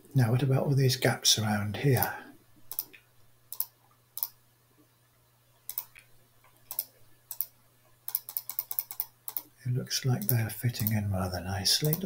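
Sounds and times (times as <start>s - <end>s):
faint low hum: 0.0s - 12.0s
computer mouse clicking: 2.7s - 4.4s, 5.7s - 9.5s, 10.2s - 11.0s, 11.8s - 12.0s.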